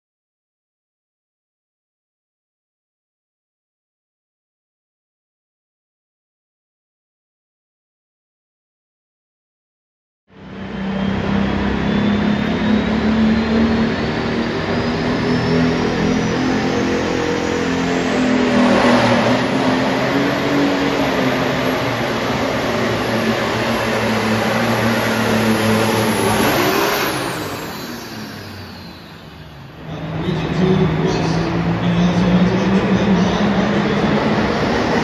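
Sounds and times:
diesel engine running hard: 0:10.3 - 0:35.0
turbo whine: 0:10.3 - 0:35.0.

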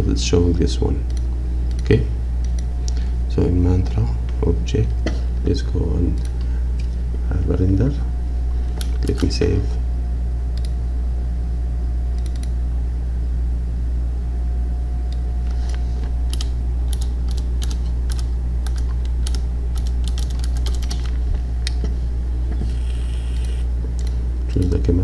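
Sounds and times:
loud steady low hum: 0:00.0 - 0:25.0
computer keyboard typing: 0:16.3 - 0:21.1.

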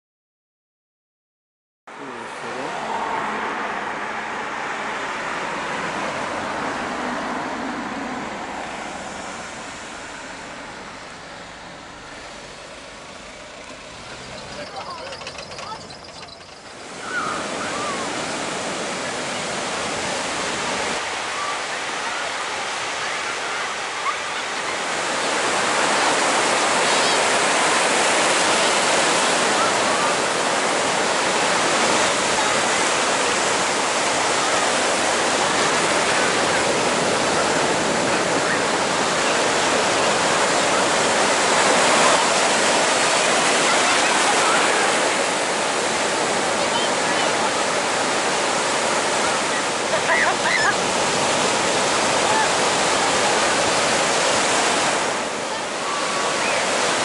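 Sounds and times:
waves breaking on beach: 0:01.9 - 0:57.0
faint voices: 0:10.2 - 0:57.0.

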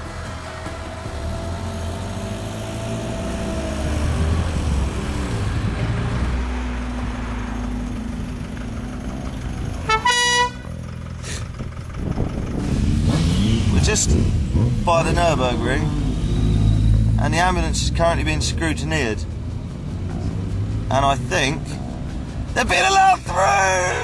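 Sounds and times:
vehicle engine running: 0:00.0 - 0:24.0
short loud horn toot: 0:09.9 - 0:10.7.

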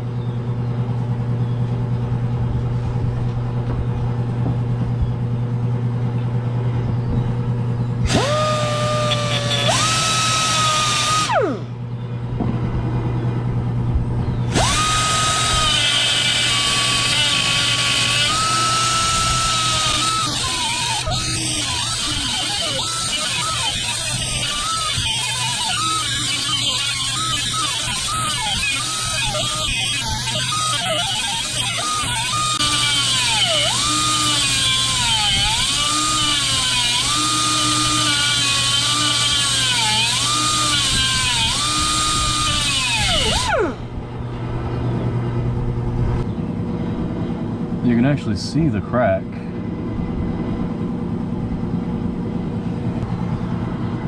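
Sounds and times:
steady low hum: 0:00.0 - 0:54.0
air angle grinder grinding steel: 0:08.0 - 0:11.8, 0:14.5 - 0:43.9.

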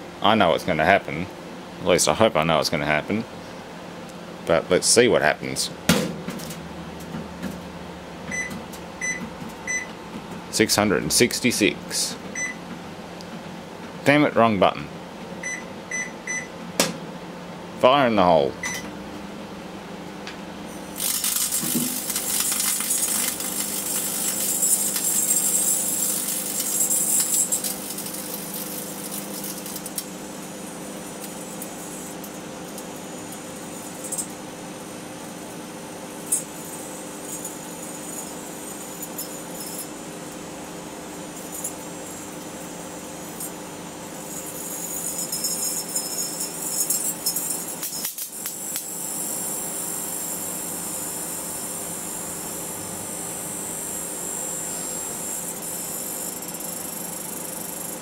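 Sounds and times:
microwave oven humming: 0:00.0 - 0:58.0
electric arcing crackling sizzle: 0:20.8 - 0:30.5, 0:46.7 - 0:56.7.

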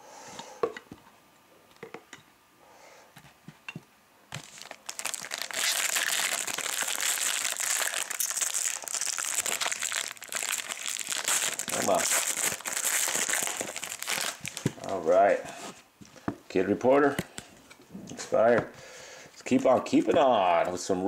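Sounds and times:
foil card pack crinkling: 0:04.3 - 0:15.1.

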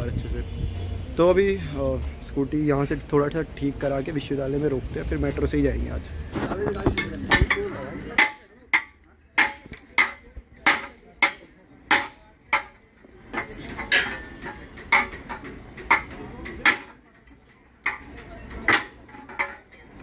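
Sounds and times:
hammer striking metal: 0:06.9 - 0:12.8, 0:13.4 - 0:17.0.

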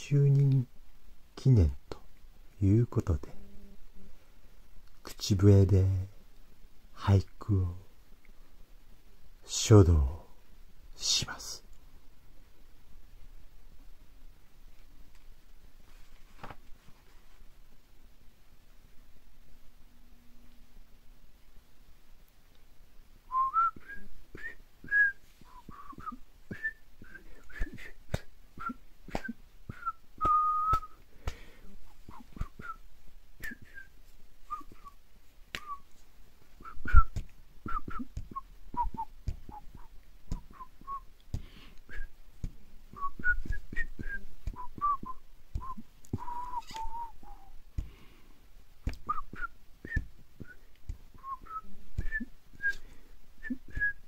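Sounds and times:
person whistling: 0:23.3 - 0:28.0, 0:28.6 - 0:31.0, 0:32.1 - 0:32.8, 0:33.4 - 0:33.9, 0:34.5 - 0:35.0, 0:36.6 - 0:41.0, 0:41.9 - 0:42.1, 0:42.9 - 0:48.0, 0:49.0 - 0:52.8, 0:53.4 - 0:54.0.

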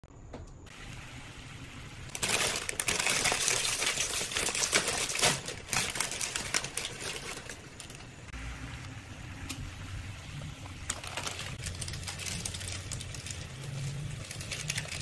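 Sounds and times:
plastic wrapper crinkling and tearing: 0:02.1 - 0:08.3, 0:10.7 - 0:15.0.

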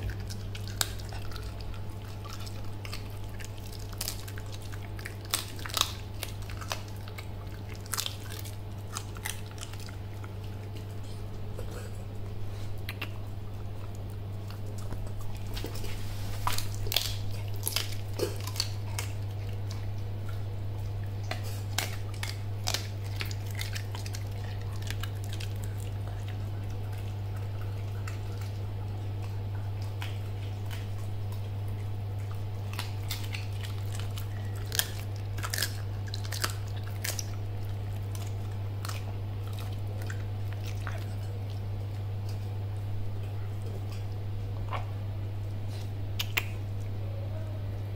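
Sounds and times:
puppy crunching bones: 0:00.0 - 0:46.9
steady low hum: 0:00.0 - 0:47.9.

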